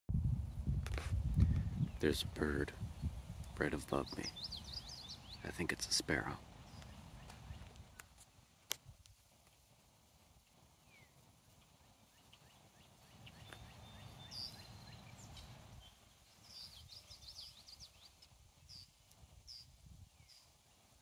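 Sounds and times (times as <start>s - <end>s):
low microphone rumble: 0.1s - 4.4s
songbird chirps: 1.7s - 8.2s, 10.4s - 21.0s.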